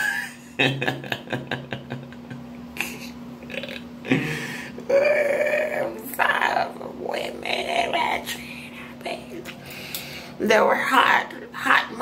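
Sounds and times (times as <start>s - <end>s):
man making vocal sounds: 0.0s - 5.7s.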